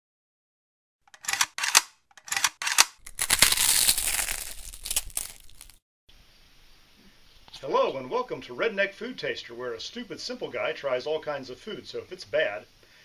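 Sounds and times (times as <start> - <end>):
crisp crunching and crinkling: 2.9 - 5.8.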